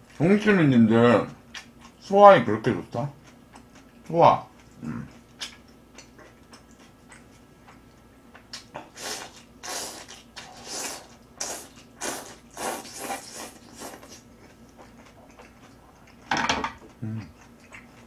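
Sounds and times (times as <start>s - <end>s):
noodles being slurped: 9.0s - 14.2s.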